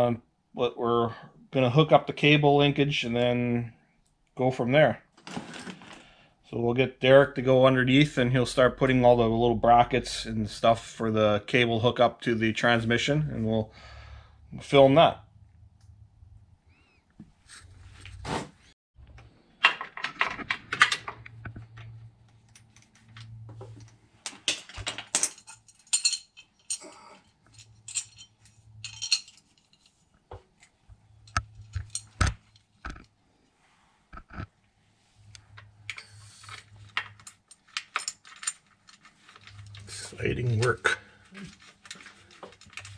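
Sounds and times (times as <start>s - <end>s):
metallic clinks of tools and bolts: 24.5s - 30.0s, 31.2s - 32.6s.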